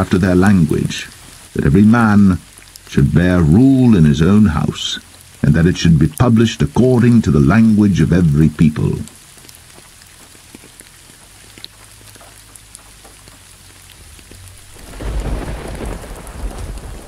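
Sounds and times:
steady rain falling: 0.0 - 17.0
thunder rumbling: 14.0 - 17.0.

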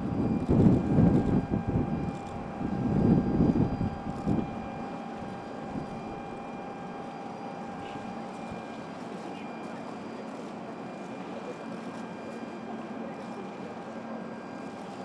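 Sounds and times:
steady hum: 0.0 - 11.6
faint steady tone: 0.0 - 15.0.

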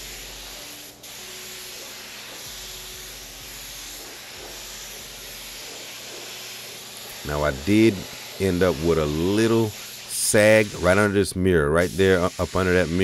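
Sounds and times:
spray gun hissing: 0.0 - 13.0.

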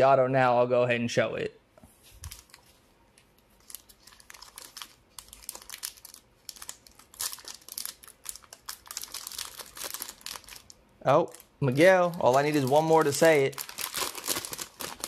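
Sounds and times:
plastic foil wrapper crinkling: 2.2 - 2.7, 3.4 - 15.0.

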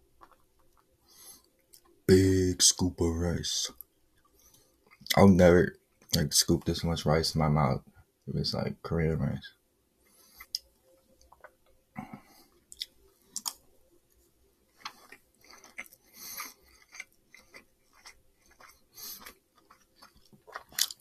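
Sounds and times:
person chewing food: 0.0 - 2.0, 3.8 - 5.2, 10.0 - 21.0.

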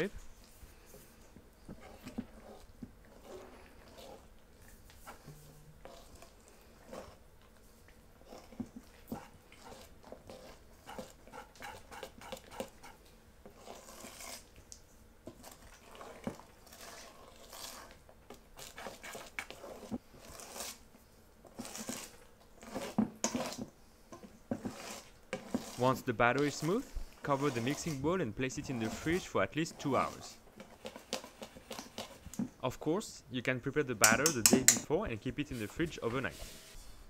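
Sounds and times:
whisk stirring batter in bowl: 0.0 - 7.2, 7.8 - 32.6, 34.0 - 34.8.

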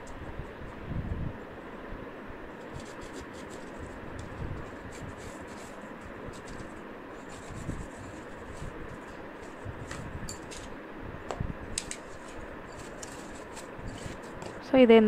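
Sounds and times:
cardboard rubbing and tapping on stone: 2.6 - 10.7, 11.8 - 14.6.

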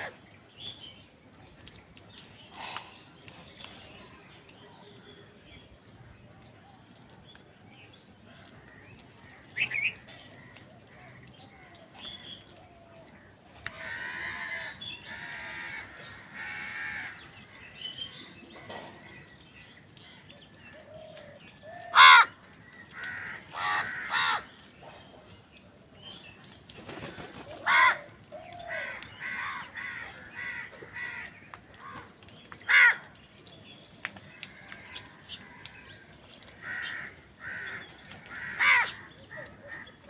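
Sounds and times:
crows cawing: 13.1 - 17.4, 21.6 - 24.7, 27.5 - 33.2, 34.4 - 40.0.

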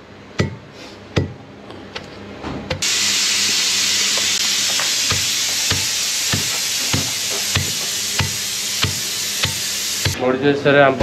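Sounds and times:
food sizzling in hot oil: 2.8 - 10.2.

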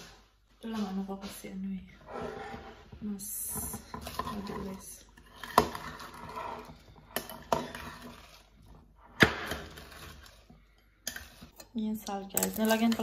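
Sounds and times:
metal tongs clinking on ceramic: 11.1 - 13.0.

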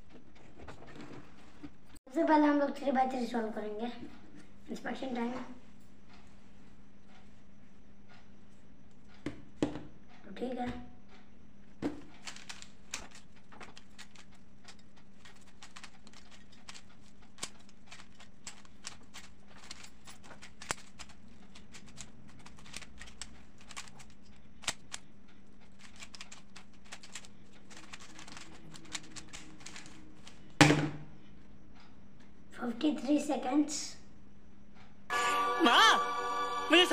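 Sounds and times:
puzzle cube plastic clicks: 12.0 - 30.6
loud thump: 30.6 - 31.1.

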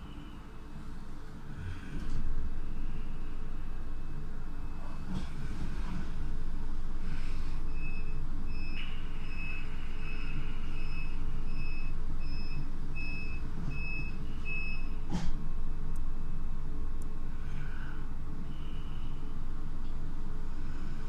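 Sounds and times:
train rumbling: 0.0 - 12.2
high electronic warning beeps: 7.7 - 15.0.

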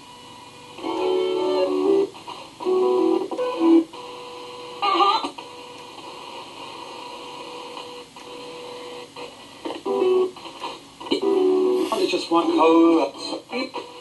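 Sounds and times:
radio static hiss: 0.0 - 14.0
clipped radio broadcast fragments: 10.4 - 14.0.

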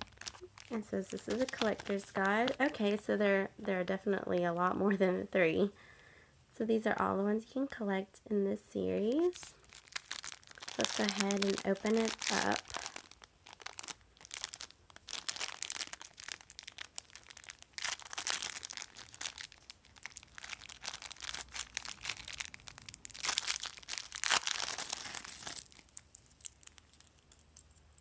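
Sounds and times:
plastic wrapper crinkling and tearing: 0.0 - 3.1, 9.1 - 27.4.

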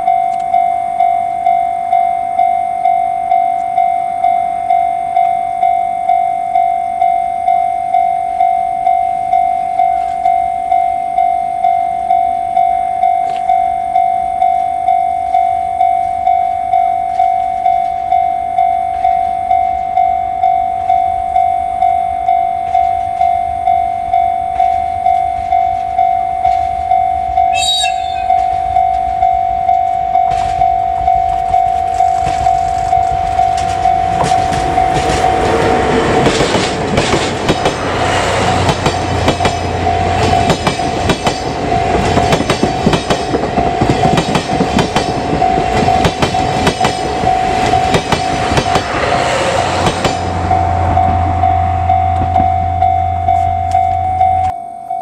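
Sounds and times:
level crossing bell ringing: 0.0 - 35.6, 50.3 - 55.0
diesel locomotive: 0.0 - 55.0
locomotive horn blast: 27.5 - 28.6
train wheels clattering: 30.2 - 52.6.

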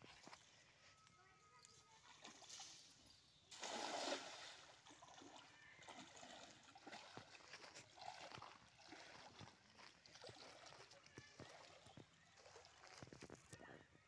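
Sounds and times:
net splashing on water: 3.5 - 13.2
person wading in water: 3.5 - 13.6.

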